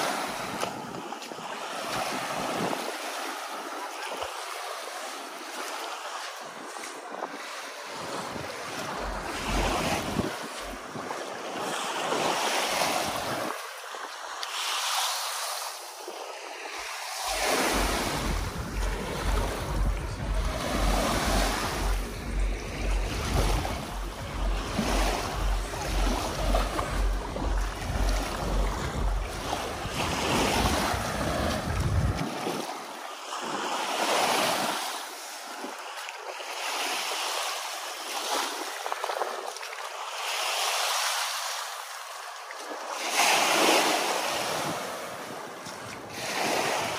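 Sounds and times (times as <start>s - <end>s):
waves washing against rocks: 0.0s - 46.9s
wind buffeting microphone: 6.6s - 13.6s, 16.7s - 32.8s
low pulsing hum: 8.9s - 10.8s, 17.2s - 32.2s.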